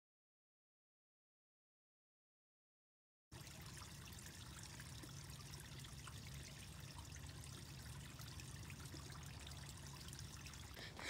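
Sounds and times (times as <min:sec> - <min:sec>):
water trickling under drain grate: 0:03.3 - 0:11.0.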